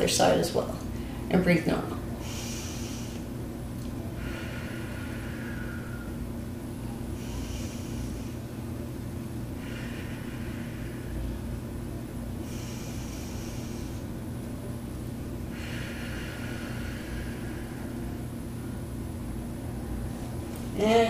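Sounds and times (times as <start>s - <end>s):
low room hum: 0.0s - 21.0s
woman breathing slowly: 0.9s - 1.3s, 2.1s - 14.5s, 15.1s - 18.9s.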